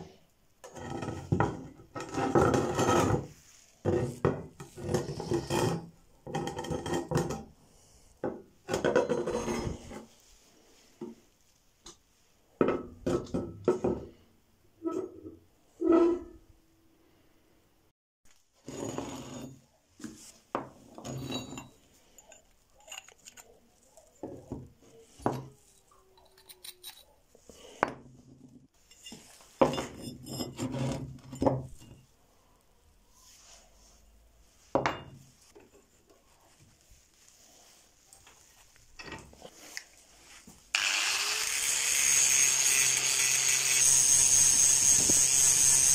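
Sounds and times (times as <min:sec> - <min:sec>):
metal scraping and rubbing: 0:00.6 - 0:07.5, 0:08.7 - 0:10.3, 0:14.8 - 0:16.4, 0:18.6 - 0:24.1, 0:24.8 - 0:27.2.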